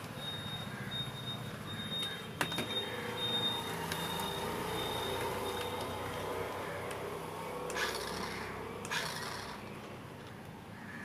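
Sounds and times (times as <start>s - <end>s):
toy car motor whirring: 7.7s - 9.7s.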